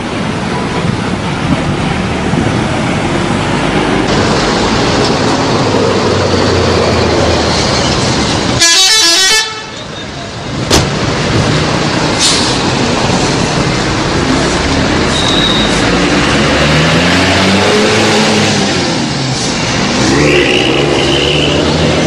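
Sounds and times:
buses driving past: 0.0s - 22.0s
street noise: 0.0s - 22.0s
bus horn toots: 8.6s - 9.9s, 15.1s - 15.8s.

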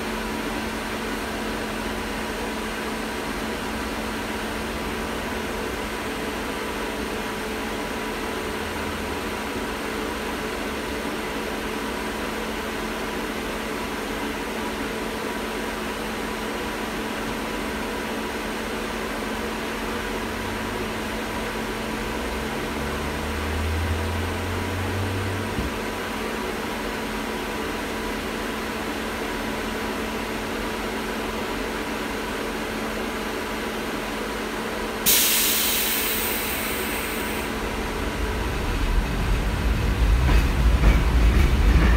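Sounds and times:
tram hum from inside: 0.0s - 41.9s
sudden loud hiss: 35.0s - 40.6s.

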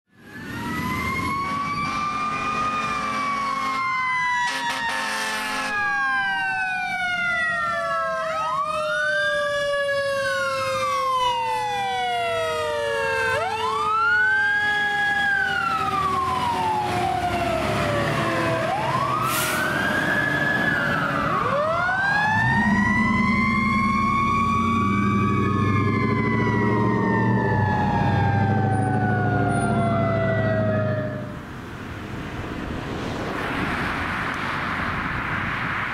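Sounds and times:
electronic siren wailing: 0.2s - 31.4s
siren tone winding down: 0.2s - 31.4s
horn blast: 1.4s - 5.9s
truck engine rumble: 11.4s - 35.9s.

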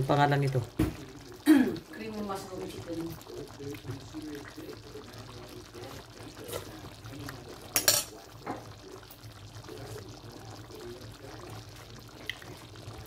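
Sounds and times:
sauce bubbling in a pan: 0.0s - 13.0s.

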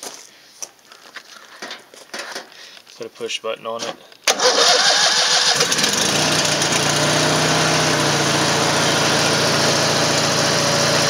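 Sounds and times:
riding lawn mower engine running: 4.3s - 11.0s.

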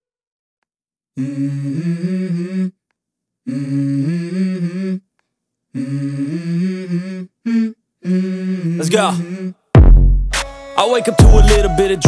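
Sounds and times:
person humming a melody: 1.2s - 2.8s, 3.5s - 5.1s, 5.8s - 9.6s, 11.1s - 12.0s.

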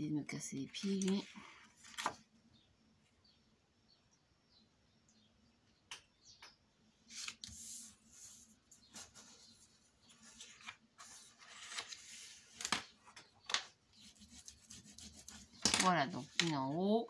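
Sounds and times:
cardstock rustling and sliding: 10.1s - 12.9s.

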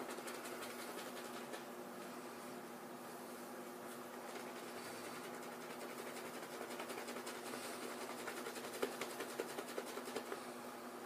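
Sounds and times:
shaving brush swishing lather: 0.0s - 1.6s, 4.1s - 10.4s
faint steady hum: 0.0s - 11.0s.

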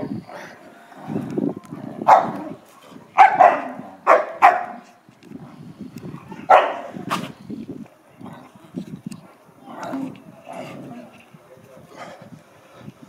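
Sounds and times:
rough low dog growl: 0.0s - 4.0s, 8.2s - 12.9s
dogs barking: 2.0s - 2.6s, 3.2s - 5.0s, 6.2s - 7.3s.

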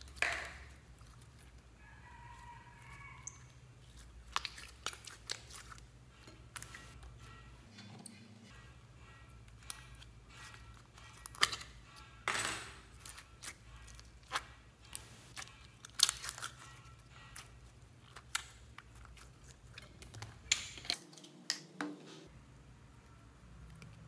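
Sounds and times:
plastic tubs clicking and crackling: 0.0s - 1.6s, 3.2s - 7.2s, 9.5s - 11.8s, 12.4s - 16.7s, 17.3s - 21.8s.

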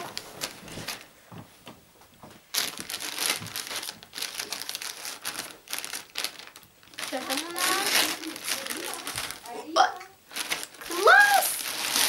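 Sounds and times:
plastic mailer bag crinkling: 2.5s - 9.5s, 10.3s - 12.0s.

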